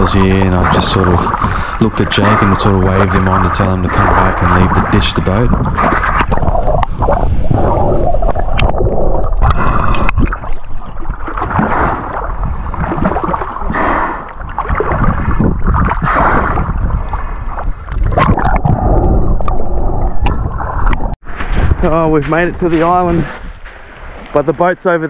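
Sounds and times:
water splashing around swimmer: 0.0 - 19.4.

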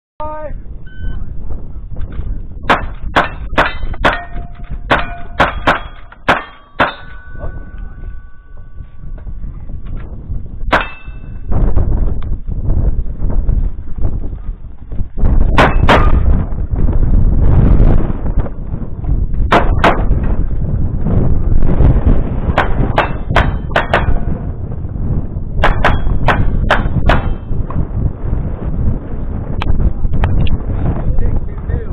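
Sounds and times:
gunshots: 2.7 - 7.3, 19.5 - 20.2
steel targets ringing: 2.7 - 9.0, 10.7 - 11.5, 22.6 - 24.5.

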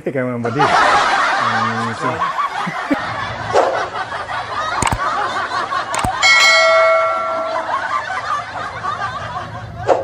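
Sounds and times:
mouse clicks: 4.8 - 5.0, 6.0 - 6.2
notification bell chime: 6.2 - 7.9.

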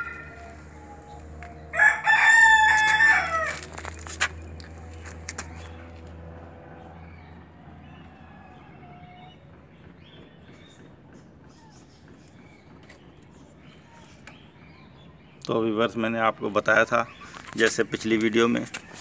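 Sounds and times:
rooster crowing: 0.0 - 3.8
steady low hum: 0.0 - 15.4.

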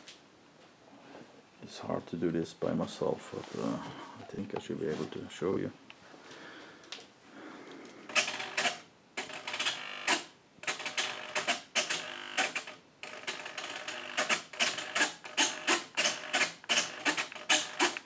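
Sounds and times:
servos buzzing: 8.1 - 18.0.

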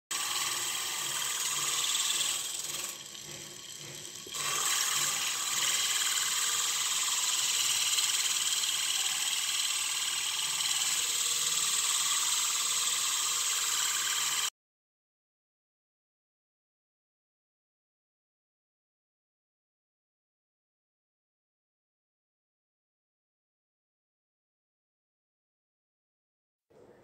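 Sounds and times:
rotary sander sanding wood: 0.0 - 14.5.

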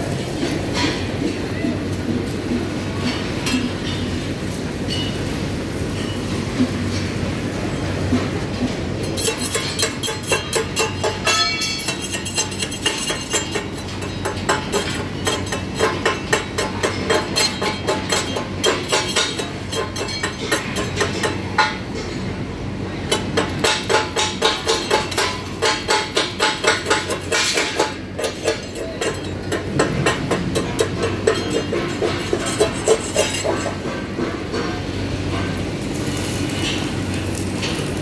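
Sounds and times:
workshop hum: 0.0 - 38.0
hammer striking steel: 8.1 - 22.3, 23.0 - 36.8.

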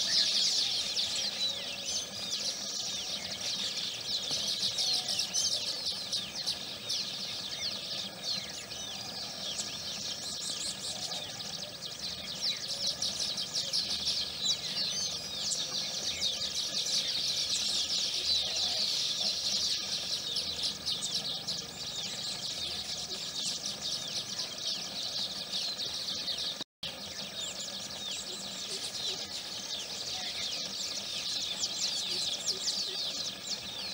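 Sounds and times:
many birds twittering: 0.0 - 33.9.

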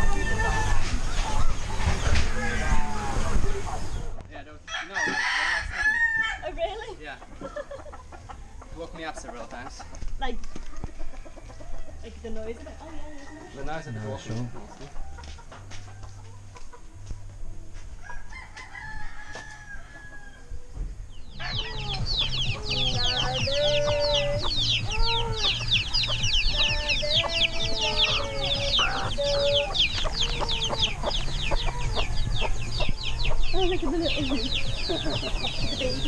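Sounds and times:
roosters crowing: 0.0 - 4.0, 4.6 - 9.8, 10.7 - 16.9, 17.9 - 36.0
hens clucking: 6.6 - 17.6, 20.7 - 36.0.

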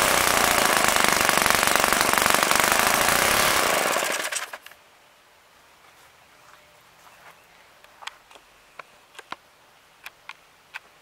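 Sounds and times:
model engine running at high speed: 0.0 - 4.6.

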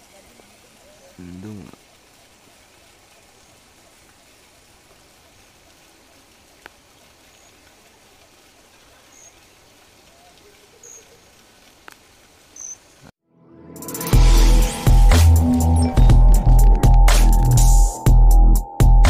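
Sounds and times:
faint steady hiss: 0.0 - 13.1
faint clicks: 6.6 - 7.8, 11.6 - 12.1.

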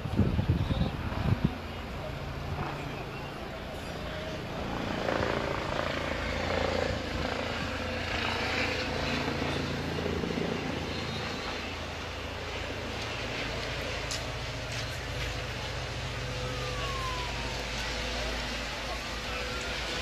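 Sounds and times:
engine drone: 0.0 - 20.0.

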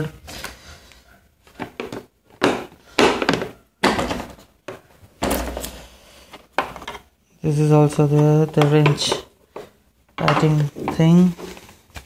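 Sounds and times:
tools knocking in plastic case: 1.6 - 5.7, 8.2 - 11.1.

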